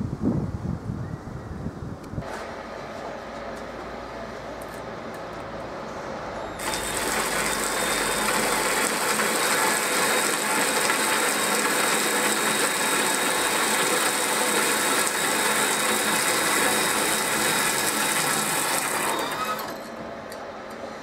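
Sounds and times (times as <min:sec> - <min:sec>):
rollers crushing grain: 0:06.6 - 0:20.0
drill driving grain mill: 0:06.6 - 0:20.1.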